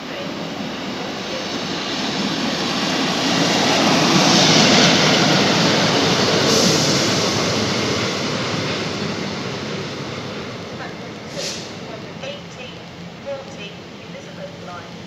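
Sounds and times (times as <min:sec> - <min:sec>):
train passing at speed: 0:00.0 - 0:15.0
wheels rushing on rails: 0:00.0 - 0:15.0.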